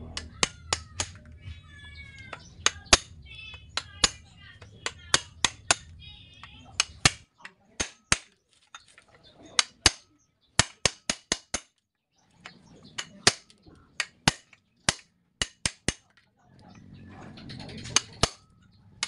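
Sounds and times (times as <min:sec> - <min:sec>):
hammer striking metal chisel: 0:00.2 - 0:01.3, 0:02.3 - 0:04.2, 0:04.8 - 0:06.0, 0:06.7 - 0:08.9, 0:09.5 - 0:11.8, 0:12.4 - 0:16.1, 0:17.8 - 0:18.6.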